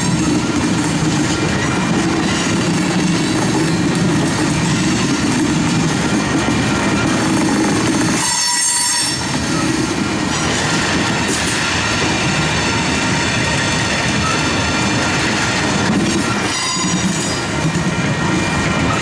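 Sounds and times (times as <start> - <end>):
train wheels rumbling on rails: 0.0 - 19.0
wheel squeal: 16.4 - 17.4.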